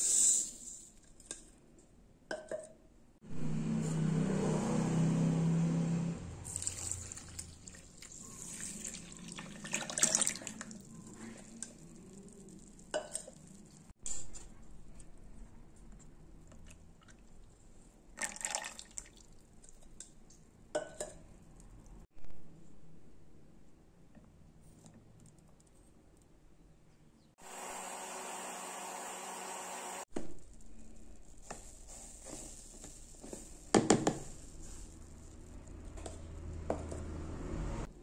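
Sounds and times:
liquid pouring and splashing: 0:06.5 - 0:13.9, 0:18.2 - 0:19.8.

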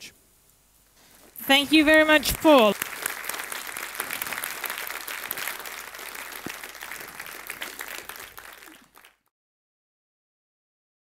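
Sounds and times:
audience applauding: 0:01.5 - 0:09.3.

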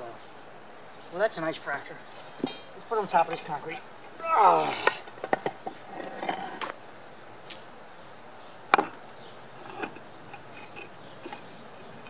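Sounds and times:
concrete pieces knocking and scraping: 0:04.8 - 0:06.8, 0:08.7 - 0:09.0, 0:09.6 - 0:12.0.

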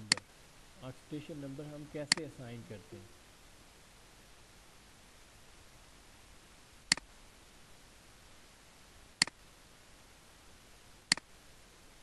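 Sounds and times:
faint steady hiss: 0:00.0 - 0:12.0
computer mouse clicks: 0:06.9 - 0:07.1, 0:11.1 - 0:11.3.

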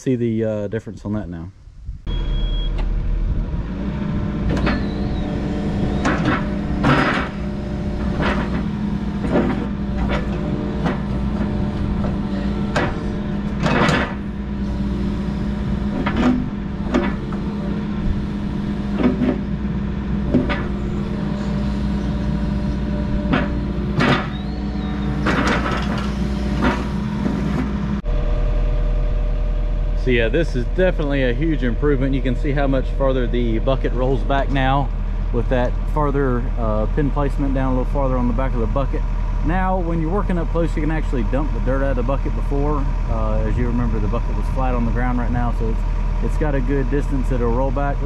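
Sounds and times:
diesel engine running: 0:01.8 - 0:48.0
excavator bucket clunks and clicks: 0:06.0 - 0:07.4, 0:08.1 - 0:14.2, 0:25.2 - 0:26.9.

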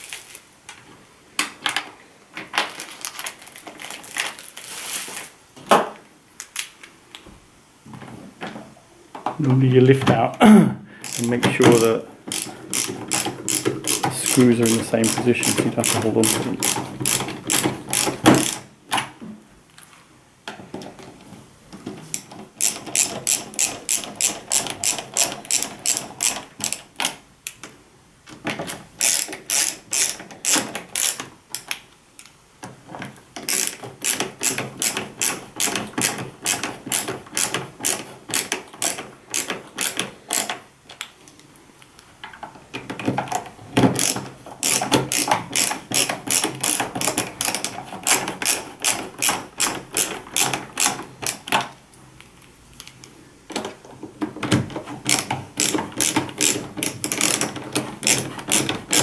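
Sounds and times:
ratcheting screwdriver clicking: 0:11.0 - 0:11.4, 0:12.3 - 0:18.6, 0:22.1 - 0:27.1, 0:29.0 - 0:32.3, 0:33.4 - 0:40.6, 0:44.0 - 0:51.6, 0:55.1 - 0:59.0.

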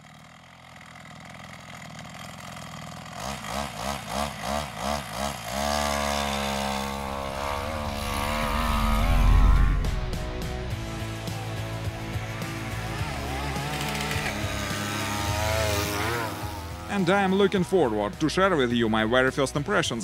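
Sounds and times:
small engine revving: 0:02.8 - 0:17.4.

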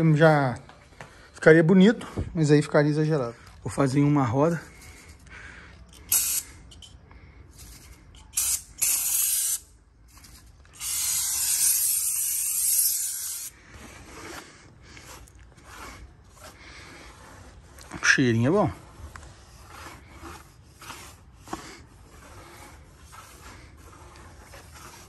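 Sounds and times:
aerosol spray hissing: 0:06.1 - 0:06.5, 0:08.3 - 0:09.7, 0:10.8 - 0:13.6.

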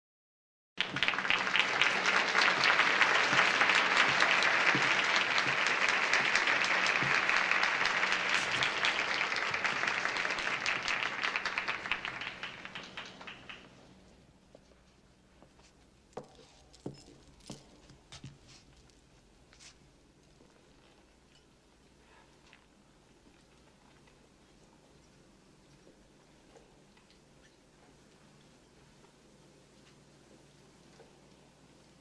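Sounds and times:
audience applauding: 0:00.8 - 0:13.8.

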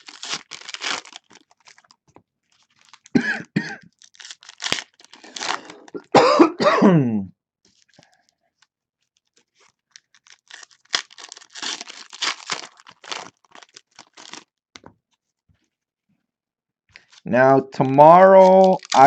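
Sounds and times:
foil wrappers tearing and crinkling: 0:00.0 - 0:03.2, 0:03.9 - 0:06.0, 0:09.1 - 0:14.5, 0:18.1 - 0:19.0
cards being handled: 0:17.0 - 0:19.0.

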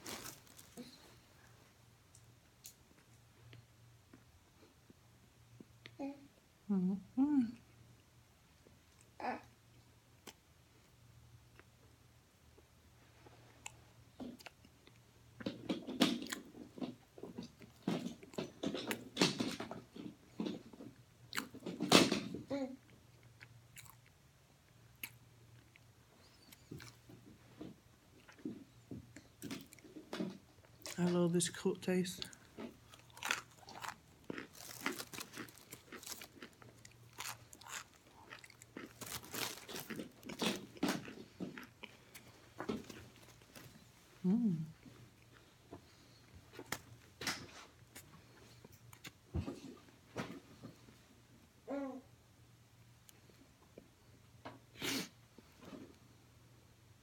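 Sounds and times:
crisp crunchy chewing: 0:00.0 - 0:01.2, 0:32.2 - 0:43.9.

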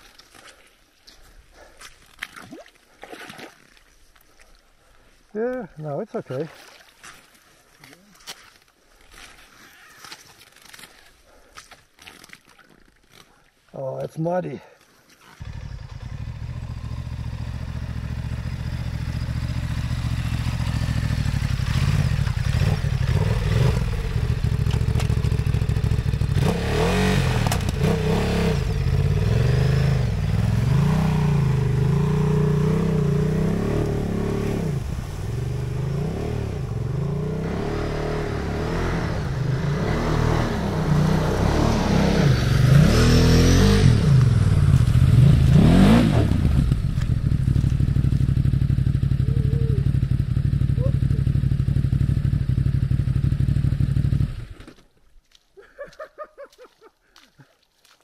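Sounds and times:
motorcycle engine revving: 0:15.4 - 0:54.8.

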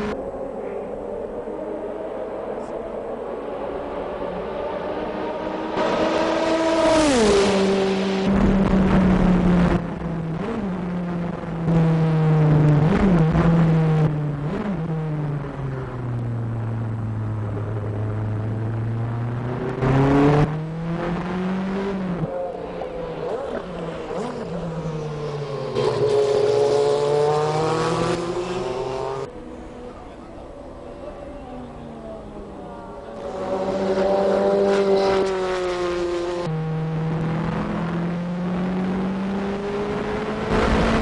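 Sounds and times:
race car engine: 0:00.0 - 0:41.0
race car passing by: 0:21.2 - 0:36.5.

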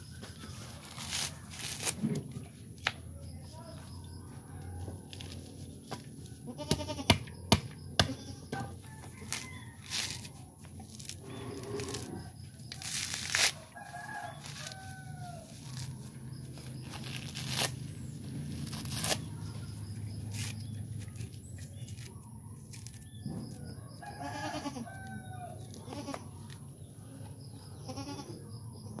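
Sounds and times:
husk fibres ripping: 0:00.7 - 0:02.1, 0:09.2 - 0:23.1
farm animal calling: 0:06.3 - 0:07.4, 0:24.0 - 0:28.6.

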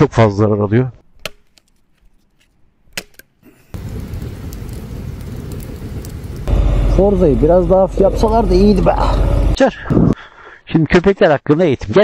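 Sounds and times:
campfire crackling and popping: 0:02.9 - 0:09.1.

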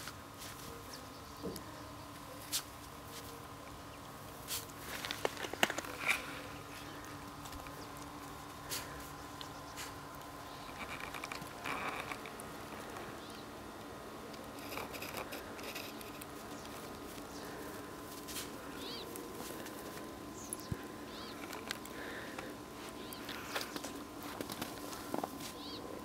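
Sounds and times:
faint steady hum: 0:00.0 - 0:26.0
dog paws crunching snow: 0:16.4 - 0:20.0, 0:21.3 - 0:25.8
bird chirps: 0:18.8 - 0:19.1, 0:20.4 - 0:21.6, 0:25.6 - 0:25.9.

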